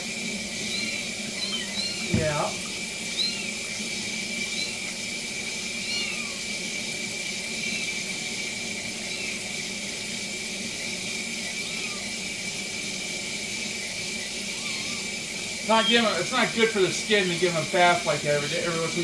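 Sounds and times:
tap water running into sink: 2.0 - 2.8
kitten mewing: 5.8 - 6.4, 14.5 - 15.1.

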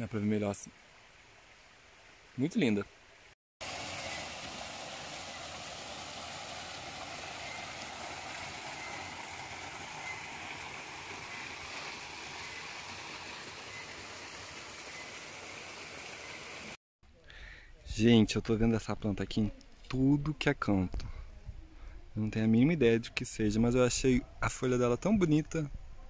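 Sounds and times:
stream flowing over rocks: 3.2 - 16.8.

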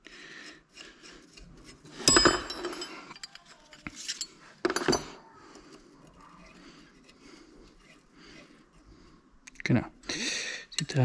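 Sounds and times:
metal parts clinking and knocking: 1.9 - 5.2.

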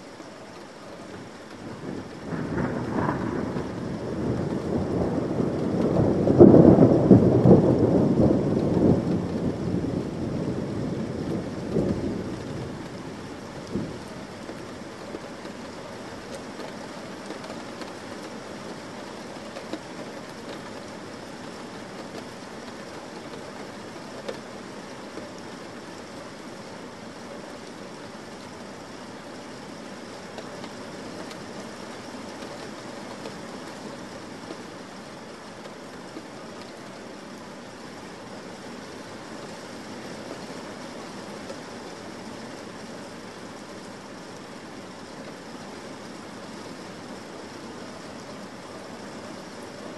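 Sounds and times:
steady rain: 0.0 - 49.9
thunder rumbling: 1.2 - 15.3.

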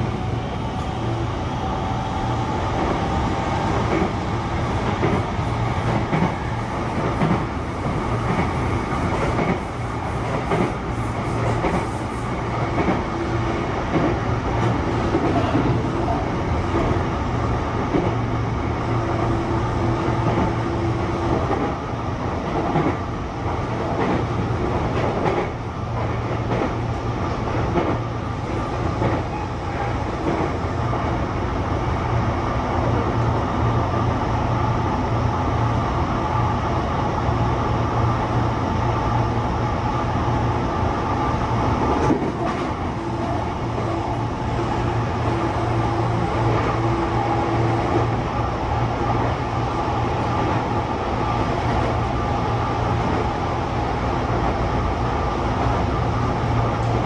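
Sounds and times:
train wheels rumbling on rail: 0.0 - 57.0
rail-joint clicks: 4.8 - 7.5, 8.2 - 9.6, 10.2 - 10.8, 11.4 - 13.1, 22.4 - 27.0, 27.6 - 28.0, 28.7 - 30.6, 41.8 - 44.0.

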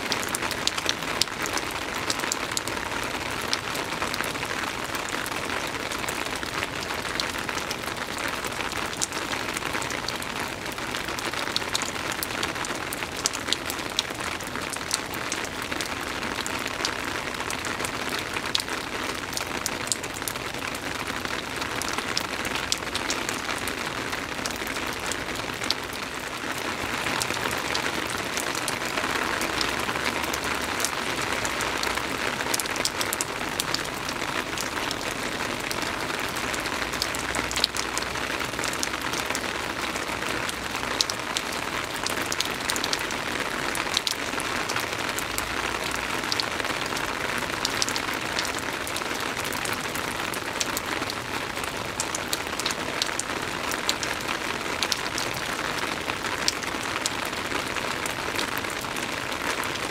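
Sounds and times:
soft rain falling: 0.0 - 59.9.

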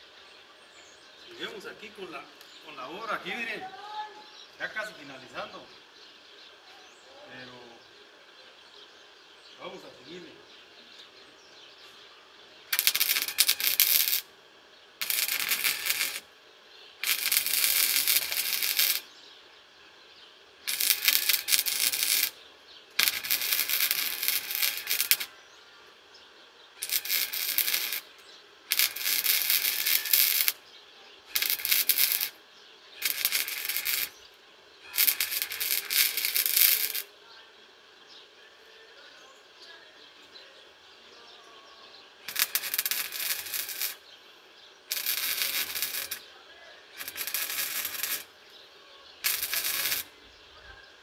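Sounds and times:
welding arc crackling: 12.7 - 14.3, 15.0 - 16.3, 17.0 - 19.1, 20.6 - 25.4, 26.8 - 30.6, 31.3 - 32.4, 33.0 - 34.2, 34.9 - 37.1, 42.3 - 44.0, 44.8 - 46.3, 46.9 - 48.4, 49.2 - 50.2.

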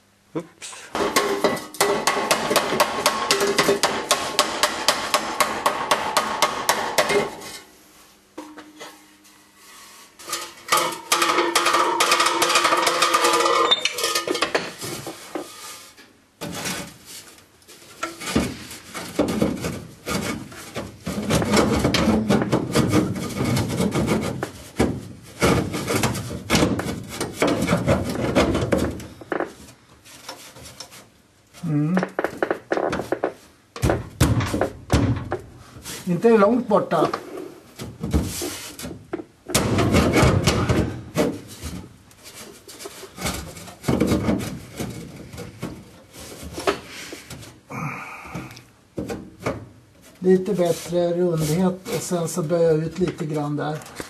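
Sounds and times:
hammer striking metal pipe: 1.0 - 7.4.

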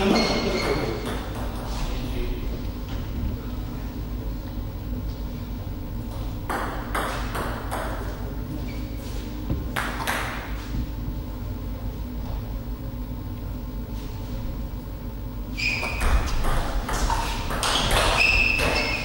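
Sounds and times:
steady hall hum: 0.0 - 19.0
table tennis ball bouncing: 0.1 - 1.6, 6.1 - 8.1, 9.5 - 10.5, 15.8 - 19.0.

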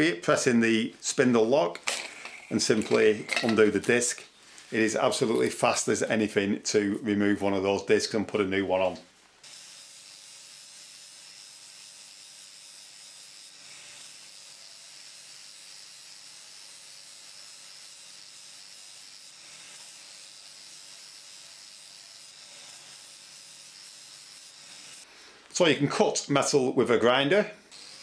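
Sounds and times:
angle grinder grinding steel: 1.9 - 3.8, 9.5 - 25.1, 27.6 - 28.0.

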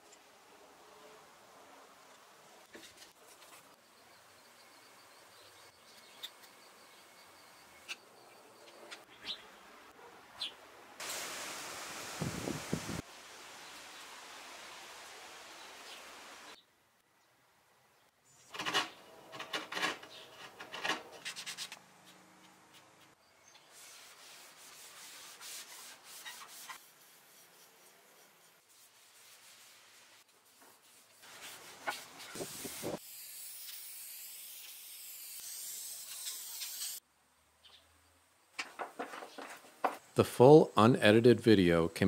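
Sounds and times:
brushing and scraping: 2.6 - 3.8, 18.5 - 33.0, 38.6 - 40.1
steady high hiss: 11.0 - 16.6
hand sanding wood: 23.8 - 33.0.

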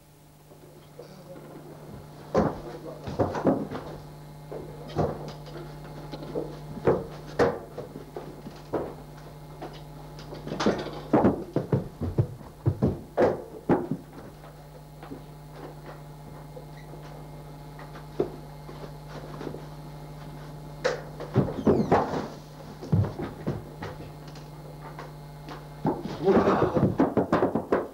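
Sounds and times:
steady low hum: 0.0 - 27.9
people moving about: 0.6 - 13.2, 21.2 - 27.1.

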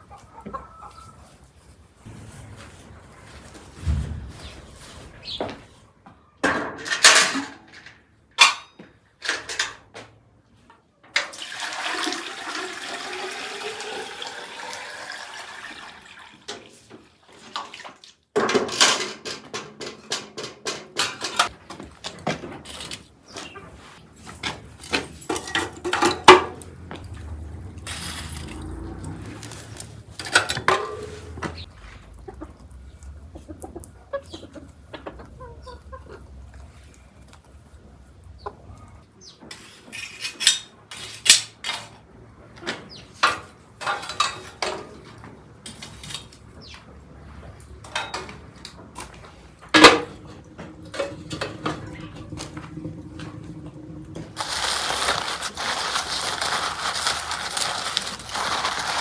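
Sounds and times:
metal bucket and lid clanks: 6.4 - 9.9, 17.4 - 21.6, 24.5 - 26.6, 30.2 - 31.6, 43.2 - 46.2, 47.8 - 48.8, 49.7 - 53.5
water pouring and splashing: 11.2 - 18.4.

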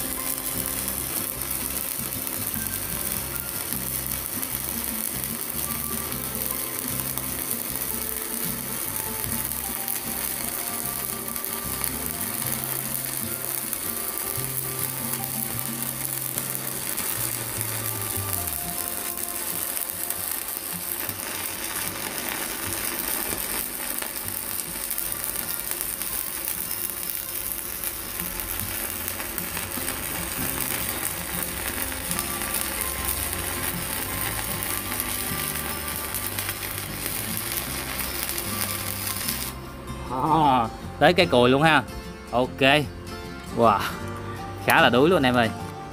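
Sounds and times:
welding arc sizzling: 0.0 - 42.8, 43.5 - 45.9.

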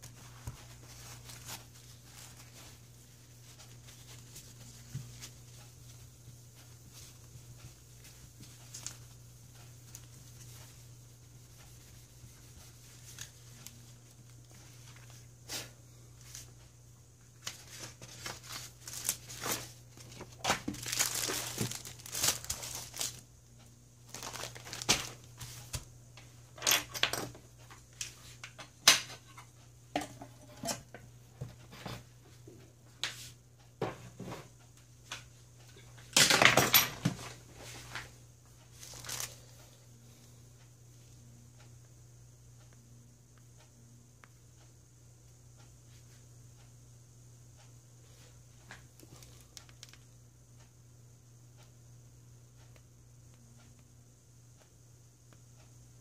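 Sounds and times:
paper and plastic rustling: 0.0 - 2.8, 17.4 - 23.2, 24.1 - 25.9, 38.7 - 39.6.

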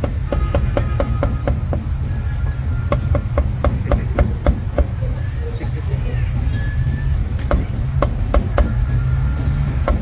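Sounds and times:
cleaver chopping on wooden block: 0.0 - 1.9, 2.9 - 5.0, 7.4 - 8.8.

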